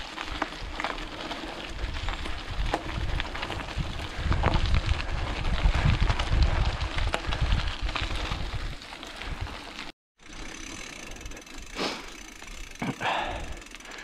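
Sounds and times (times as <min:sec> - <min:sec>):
bike rattling over rough trail: 0:00.0 - 0:14.0
wind noise on microphone: 0:01.6 - 0:09.6.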